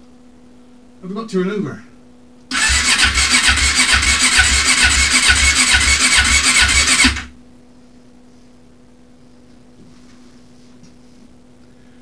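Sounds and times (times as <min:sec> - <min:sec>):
motorcycle engine cranking on starter: 0:02.5 - 0:07.3.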